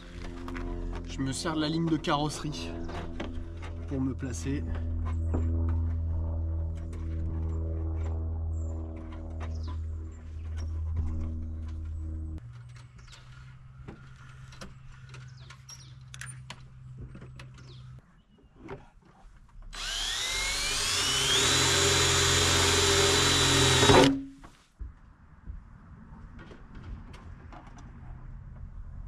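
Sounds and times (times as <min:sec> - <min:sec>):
power drill whining: 0:19.7 - 0:24.2.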